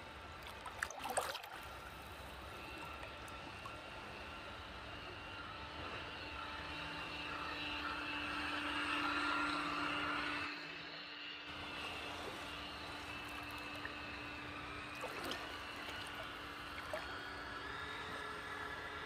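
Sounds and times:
water lapping and gurgling: 0.0 - 5.4, 11.5 - 19.0
electric motor whining hum: 0.0 - 19.0.

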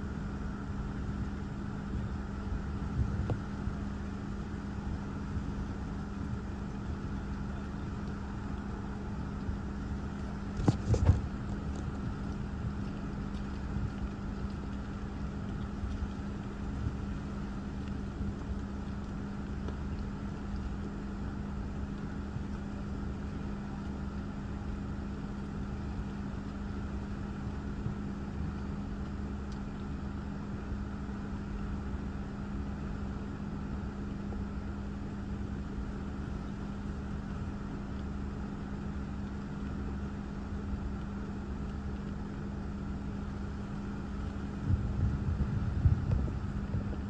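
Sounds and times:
car idling hum: 0.0 - 47.0.

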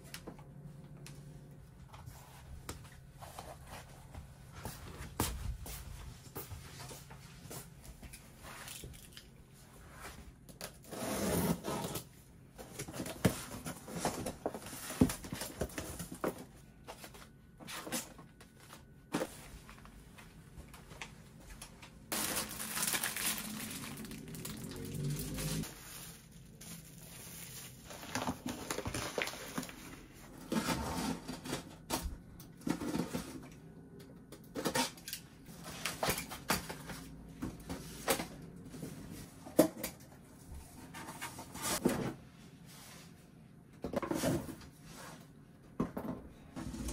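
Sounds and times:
rustling packaging: 20.7 - 30.3.

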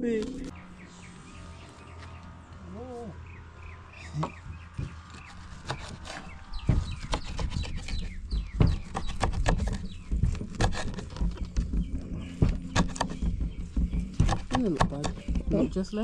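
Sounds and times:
knocks of food being chopped: 4.2 - 15.8
low rumble: 9.9 - 14.6.

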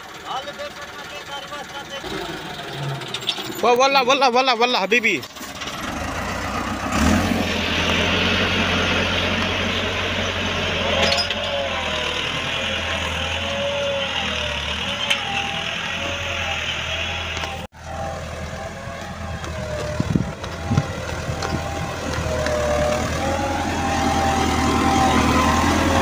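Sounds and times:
tractor diesel engine under load: 0.0 - 26.0.

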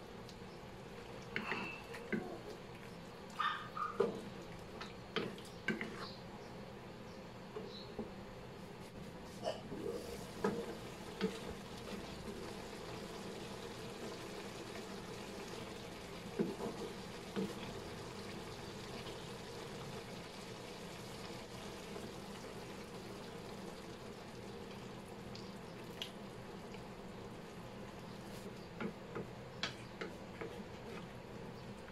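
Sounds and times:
meat sizzling in a wok: 10.3 - 24.6.

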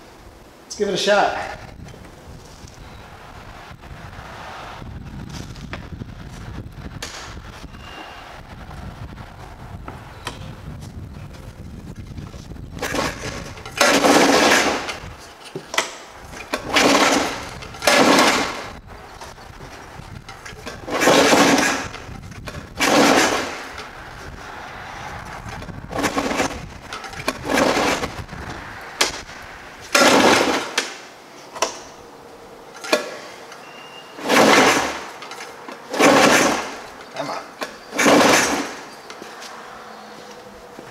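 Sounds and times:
recoil starter rope whirring: 12.1 - 31.0, 34.2 - 38.9
engine turning over: 12.8 - 31.0, 34.2 - 38.9.

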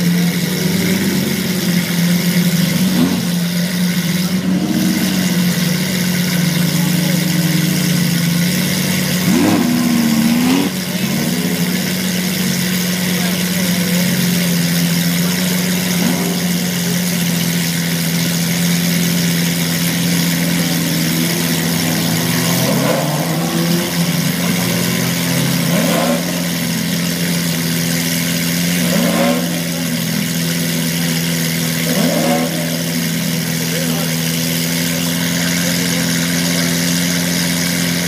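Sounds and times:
car engine idling: 0.0 - 38.0.

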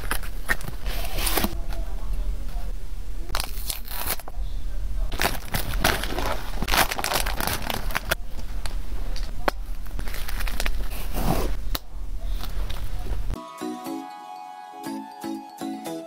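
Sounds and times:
plastic packaging crinkling: 3.3 - 4.3, 5.1 - 11.2
chime-like music: 13.4 - 16.0.

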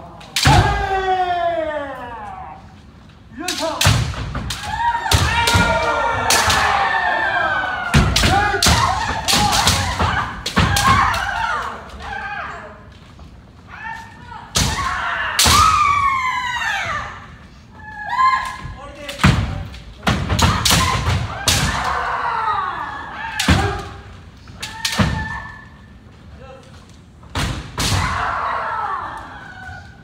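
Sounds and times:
players shouting: 4.5 - 12.9, 20.4 - 26.0.

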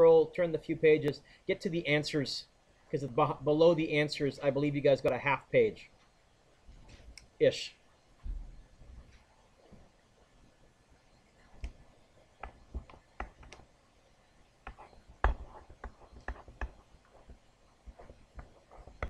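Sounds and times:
pen writing and tapping: 12.4 - 13.7, 14.6 - 19.0.

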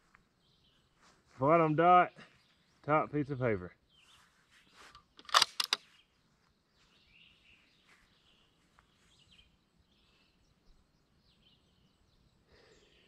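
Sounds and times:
faint birds chirping: 0.0 - 13.0
sharp clicks: 4.9 - 5.8.

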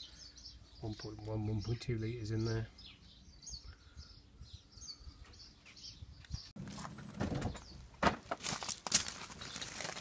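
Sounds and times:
birds chirping: 0.0 - 8.0, 9.2 - 10.0.

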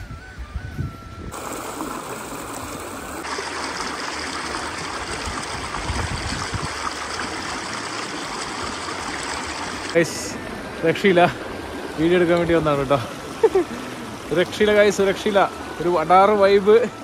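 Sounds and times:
stream water rushing: 1.3 - 17.0.

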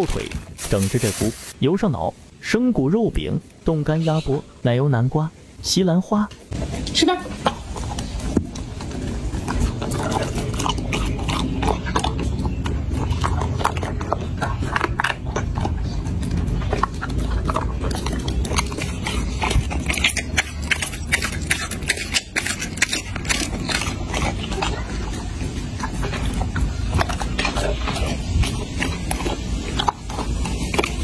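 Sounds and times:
dog chewing and crunching food: 6.5 - 31.0.

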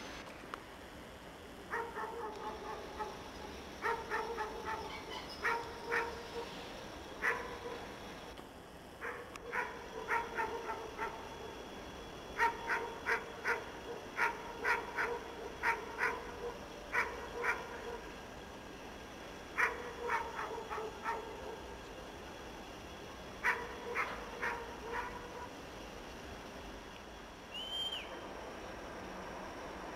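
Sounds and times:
faint steady hum: 0.0 - 29.9
dog barking: 1.7 - 3.2, 3.8 - 6.6, 7.2 - 7.8, 9.0 - 11.4, 12.4 - 18.1, 19.6 - 21.6, 23.4 - 25.5.

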